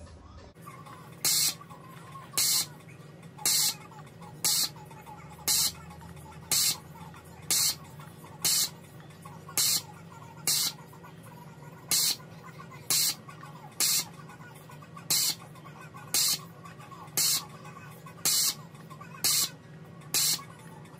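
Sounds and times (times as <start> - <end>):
steady low hum: 0.1 - 20.9
desoldering pump suction hiss: 1.2 - 1.6, 2.4 - 2.7, 3.4 - 3.8, 4.4 - 4.7, 5.5 - 5.8, 6.5 - 6.8, 7.5 - 7.8, 8.4 - 8.7, 9.6 - 9.8, 10.4 - 10.8, 11.9 - 12.2, 12.9 - 13.2, 13.8 - 14.1, 15.1 - 15.4, 16.2 - 16.4, 17.2 - 17.4, 18.2 - 18.6, 19.2 - 19.5, 20.1 - 20.4.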